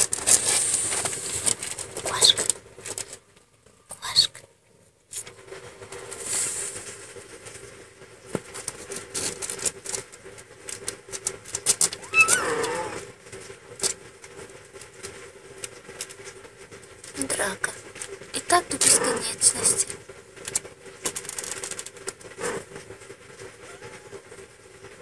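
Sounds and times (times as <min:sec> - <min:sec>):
rustling of fur and bedding: 0:00.0 - 0:03.2, 0:05.8 - 0:10.0, 0:11.6 - 0:13.2
kitten crying: 0:11.9 - 0:13.1, 0:23.6 - 0:24.3.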